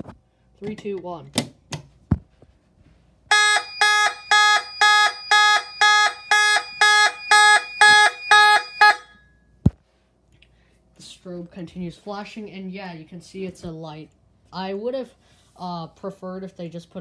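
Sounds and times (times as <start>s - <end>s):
pulsed fire alarm horn: 3.3s - 9.4s.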